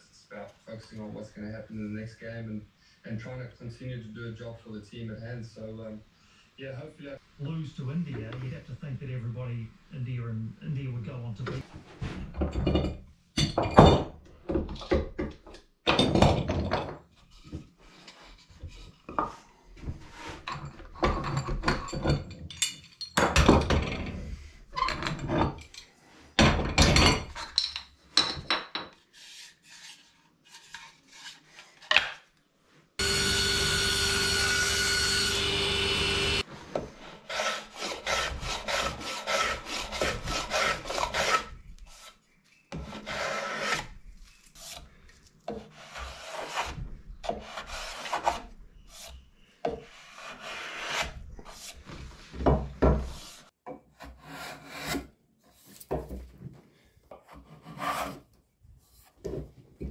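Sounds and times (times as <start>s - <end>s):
hand tool scraping wood: 29.1s - 31.9s, 33.0s - 52.3s, 53.0s - 55.9s, 57.1s - 59.2s
machine humming with held tone: 33.0s - 36.4s.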